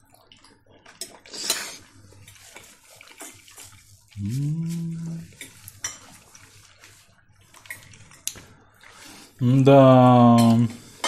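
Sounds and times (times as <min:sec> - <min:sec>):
person humming: 0:04.2 - 0:05.4.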